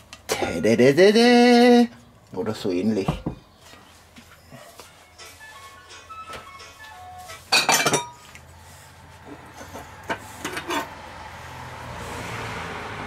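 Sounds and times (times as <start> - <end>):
crockery and ladle clattering: 7.3 - 8.2.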